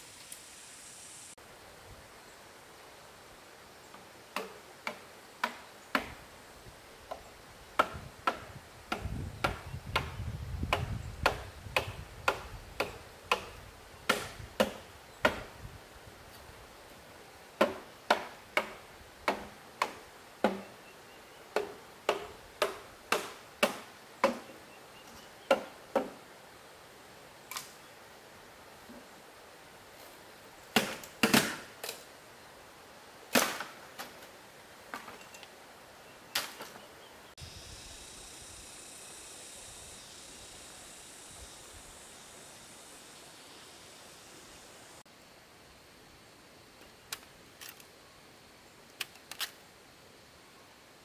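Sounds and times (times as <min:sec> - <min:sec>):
hand tool striking wood: 0:04.4 - 0:06.2, 0:07.8 - 0:15.5, 0:17.6 - 0:20.7, 0:21.6 - 0:24.6, 0:25.5 - 0:26.2.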